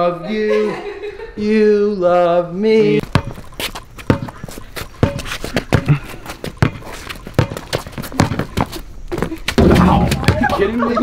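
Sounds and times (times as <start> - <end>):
basketball bouncing on concrete: 3.0 - 11.0.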